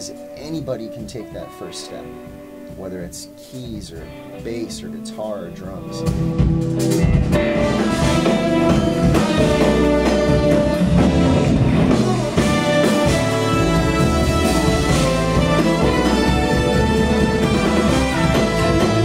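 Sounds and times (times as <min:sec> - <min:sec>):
jazz-fusion band playing: 0:00.0 - 0:19.0.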